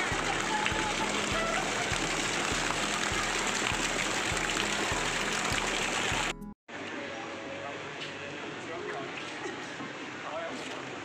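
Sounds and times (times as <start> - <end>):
fountain water splashing: 0.0 - 6.4.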